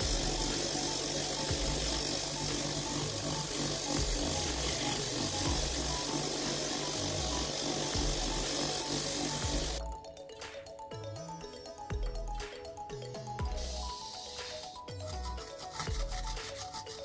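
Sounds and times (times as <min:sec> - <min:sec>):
abrasive wheel grinding metal: 0:00.0 - 0:09.8
background music with steady beat: 0:00.0 - 0:17.0.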